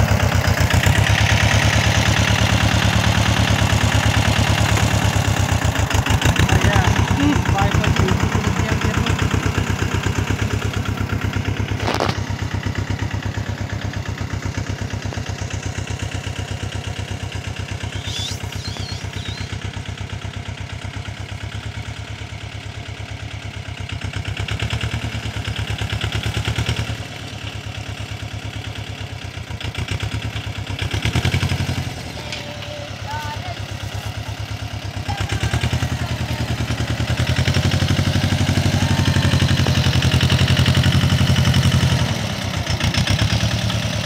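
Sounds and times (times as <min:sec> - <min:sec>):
tractor diesel engine running: 0:00.0 - 0:44.0.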